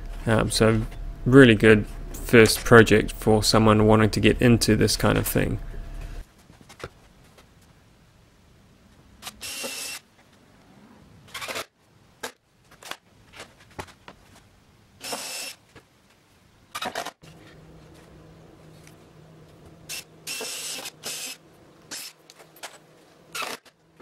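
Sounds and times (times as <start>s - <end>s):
cordless drill driving screws: 9.2s - 10.0s, 15.0s - 15.6s, 19.9s - 22.2s.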